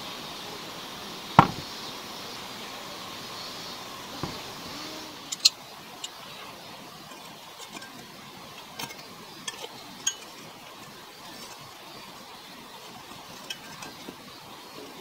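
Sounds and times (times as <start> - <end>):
faint background hiss: 0.0 - 15.0
tongs clinking against skillets: 7.0 - 14.3.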